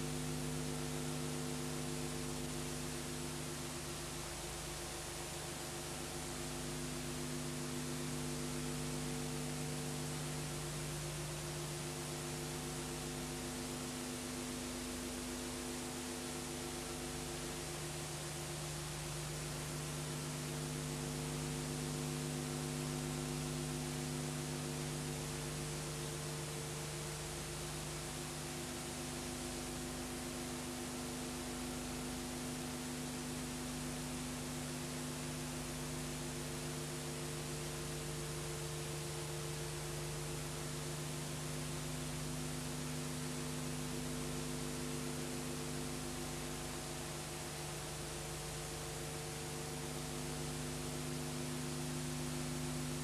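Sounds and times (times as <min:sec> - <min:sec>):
electrical mains hum with hiss: 0:00.0 - 0:53.0.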